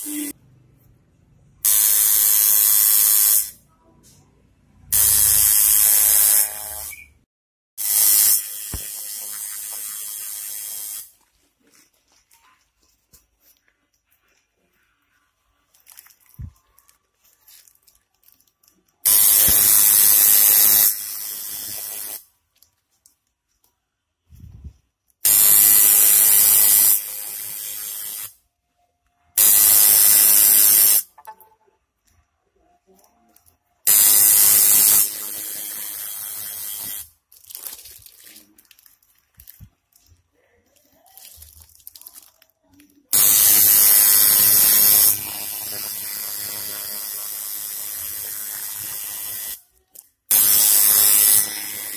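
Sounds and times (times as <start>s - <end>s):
tattoo machine buzzing: 1.6s - 3.6s, 5.0s - 7.0s, 7.8s - 11.1s, 19.1s - 22.2s, 25.2s - 28.4s, 29.4s - 31.1s, 33.9s - 37.1s, 43.2s - 49.6s, 50.3s - 51.9s.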